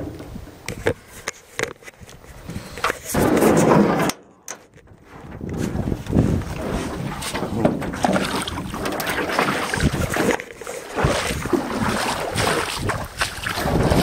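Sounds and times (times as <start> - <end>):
wind buffeting microphone: 4.7 - 14.0
water splashing around canoe: 5.3 - 14.0.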